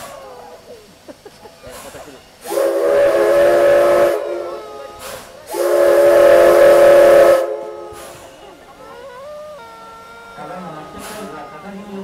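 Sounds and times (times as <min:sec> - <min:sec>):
rush of steam: 0:00.0 - 0:12.0
steam locomotive whistle: 0:02.4 - 0:12.0.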